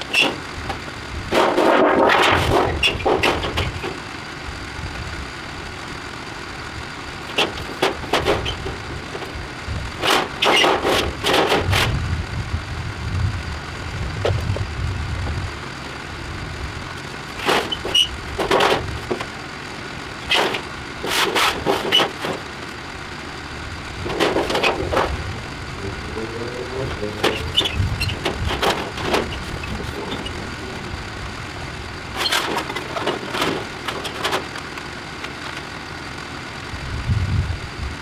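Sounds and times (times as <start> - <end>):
metal roofing panels clattering: 1.3 - 4.0, 7.3 - 9.4, 10.0 - 11.9, 17.3 - 19.3, 20.2 - 22.6, 24.0 - 25.3, 26.9 - 30.6, 32.1 - 34.6.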